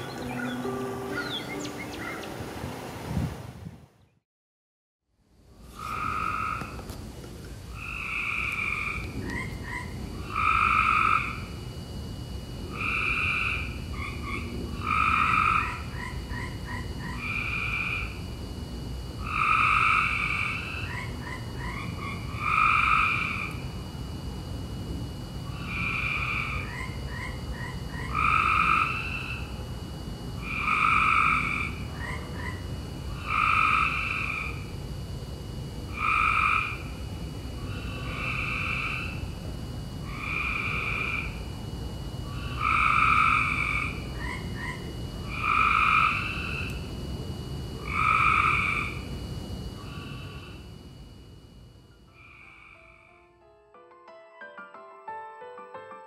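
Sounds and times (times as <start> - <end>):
frogs calling: 0.0 - 2.5, 5.7 - 11.8, 12.6 - 18.4, 19.1 - 23.9, 25.4 - 51.1, 51.9 - 53.4
quiet chirping notes: 0.0 - 2.8.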